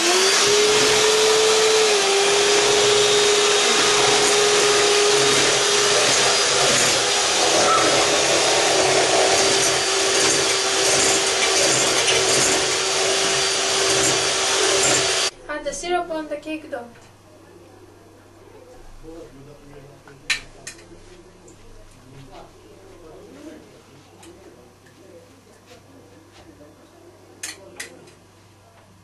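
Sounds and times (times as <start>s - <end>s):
electric hand mixer whine: 0.0s - 15.3s.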